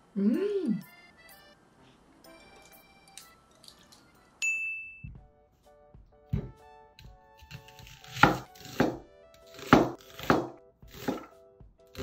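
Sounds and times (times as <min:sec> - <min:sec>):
knife chopping onion on wooden board: 0:06.3 - 0:12.0.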